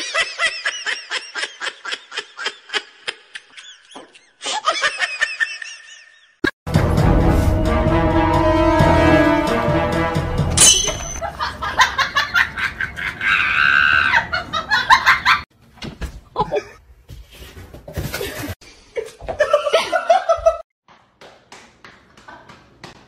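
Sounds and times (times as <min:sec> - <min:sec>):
people laughing: 0:00.0 - 0:06.4, 0:11.2 - 0:15.5, 0:19.0 - 0:20.6.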